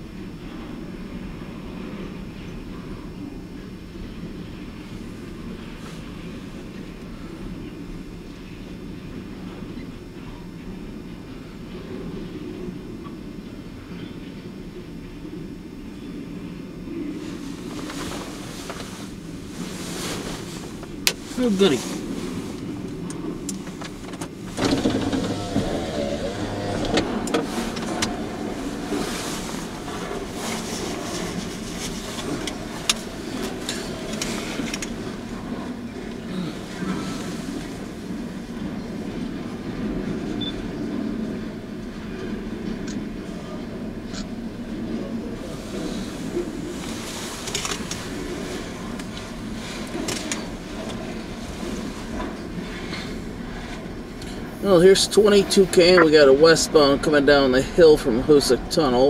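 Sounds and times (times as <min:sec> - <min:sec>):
freight train rumbling: 0:00.0 - 0:59.0
train cars clanking: 0:23.6 - 0:30.2.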